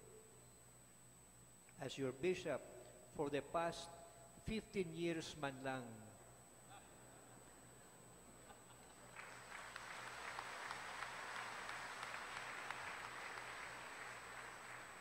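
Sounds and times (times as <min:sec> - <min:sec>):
congregation applauding: 0:08.9 - 0:15.0.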